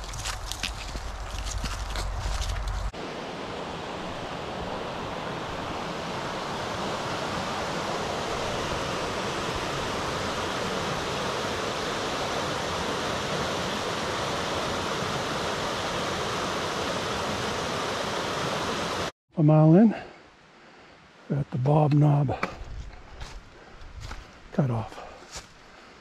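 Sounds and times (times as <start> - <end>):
stream rushing over rocks: 2.4 - 19.1.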